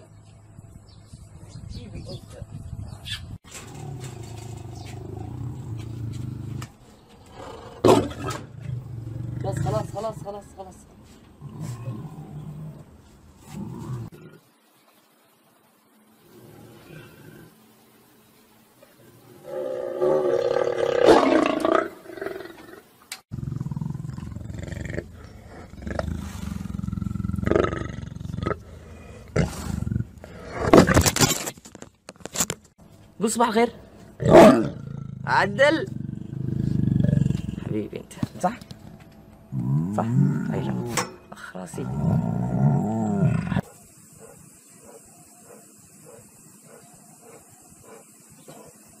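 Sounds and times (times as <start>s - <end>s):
lion growling: 3.6s - 6.7s, 7.3s - 10.4s, 11.4s - 14.5s, 19.2s - 31.0s, 34.2s - 37.9s, 39.5s - 41.1s, 41.7s - 43.7s.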